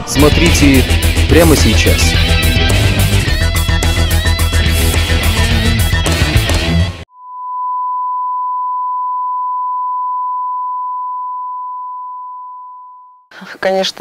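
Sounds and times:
heavy electric guitar rock music: 0.0s - 7.0s
long electronic beep: 7.1s - 13.2s.

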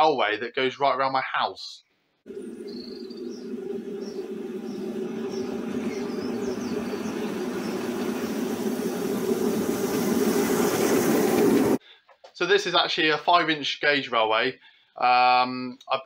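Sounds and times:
birds chirping faintly: 1.8s - 11.8s
small locomotive running on rails: 2.3s - 11.8s.

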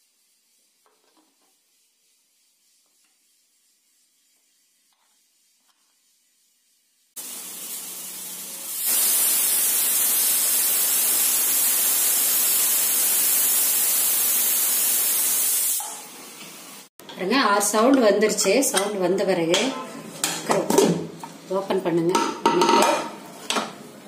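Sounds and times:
pressure cooker steam hissing: 7.2s - 16.9s.

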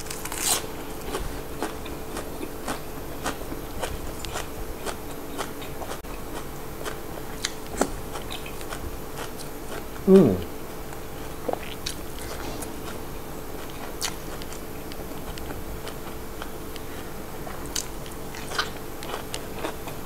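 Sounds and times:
chewing crunchy vegetables: 0.0s - 20.0s.

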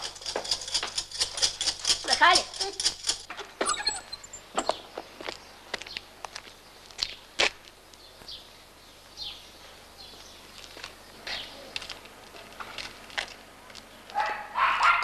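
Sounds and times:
birds chirping: 3.6s - 11.8s
light footsteps: 9.6s - 14.3s.

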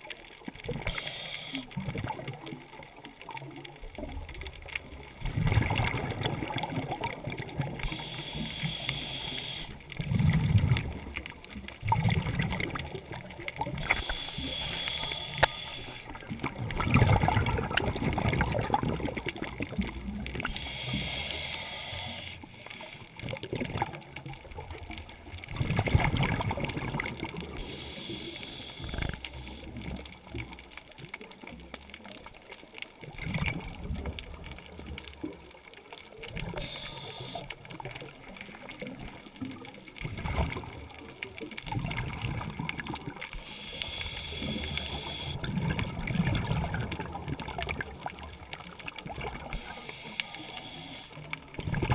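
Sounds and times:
gurgling exhaled bubbles: 0.0s - 22.2s, 23.1s - 51.9s
regulator inhale hiss: 0.8s - 1.8s, 7.8s - 9.8s, 13.7s - 16.2s, 20.4s - 23.2s, 27.5s - 29.8s, 36.4s - 37.7s, 43.3s - 45.4s, 49.4s - 51.3s.

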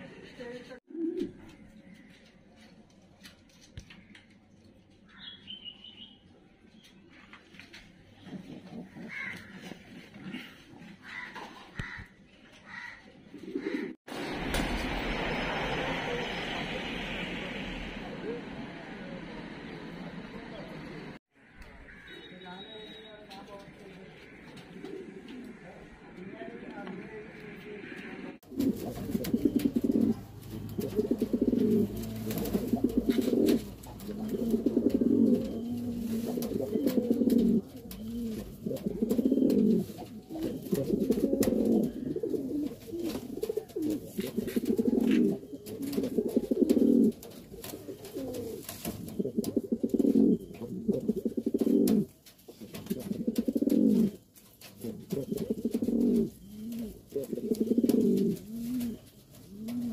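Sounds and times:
pigeons cooing: 0.9s - 2.1s, 8.3s - 12.1s, 12.7s - 14.0s, 24.3s - 25.7s, 28.4s - 59.9s.

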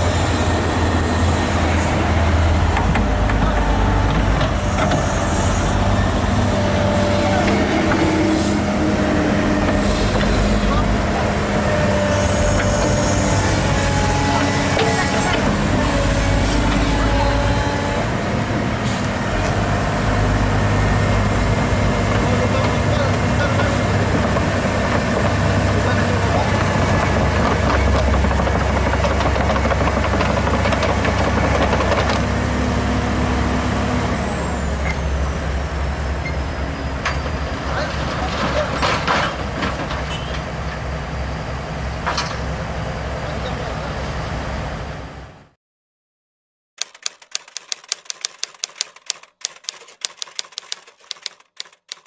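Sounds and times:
typewriter key clicks: 46.8s - 52.0s.

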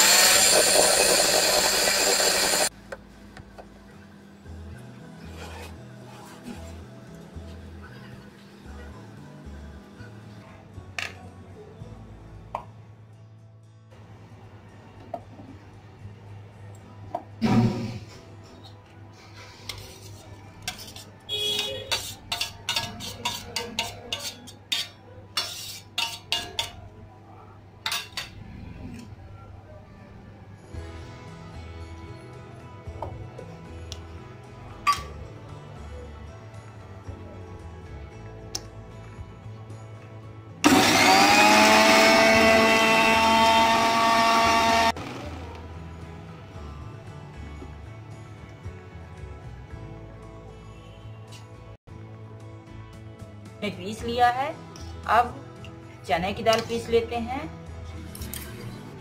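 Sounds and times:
mixer grinder motor whining: 0.0s - 2.7s, 40.6s - 45.6s.

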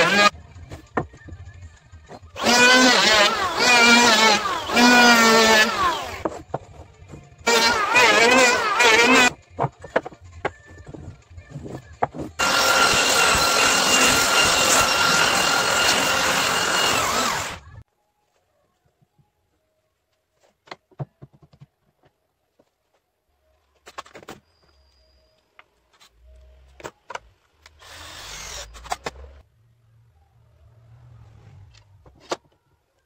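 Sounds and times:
power tool whining: 0.0s - 0.3s, 2.4s - 6.3s, 7.4s - 9.4s, 12.4s - 17.8s, 27.8s - 29.2s
knocks and clicks of wood and tools: 0.1s - 1.5s, 3.6s - 12.4s, 20.6s - 22.7s.

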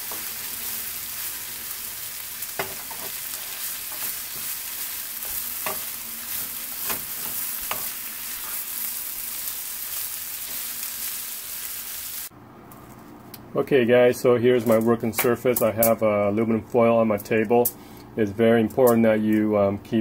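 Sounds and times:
food sizzling in skillet: 0.0s - 12.3s.

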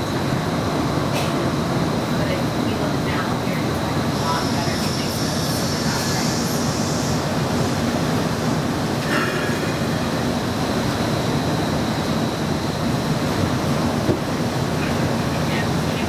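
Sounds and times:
faint high whine: 0.0s - 16.0s.

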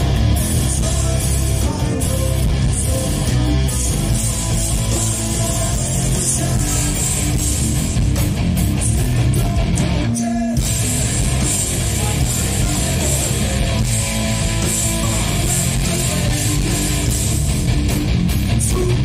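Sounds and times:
live metal band playing: 0.0s - 19.0s.

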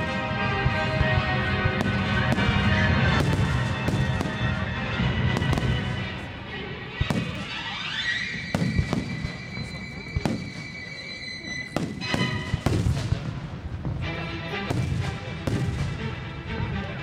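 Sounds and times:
firework bangs and pops: 0.0s - 4.6s, 5.3s - 5.9s, 7.0s - 7.8s, 8.4s - 10.9s, 11.7s - 14.0s
loud music: 0.0s - 7.2s
rising firework whistle: 7.0s - 12.8s.

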